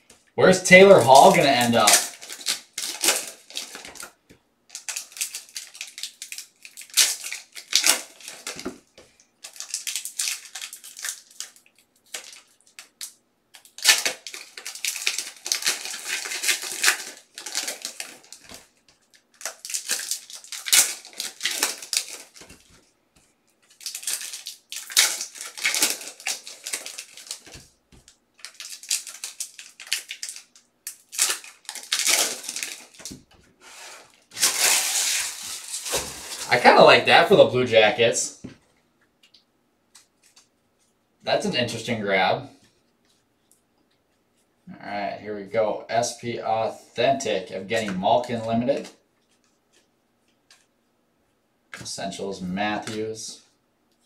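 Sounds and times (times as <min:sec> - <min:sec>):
foil wrappers crinkling and tearing: 0:00.7 - 0:08.7, 0:09.4 - 0:36.8.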